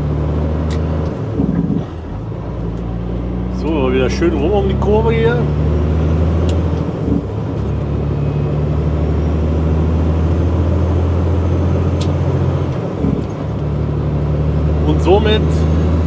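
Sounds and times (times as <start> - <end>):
road noise: 0.0 - 16.0
truck diesel engine droning: 0.0 - 16.0.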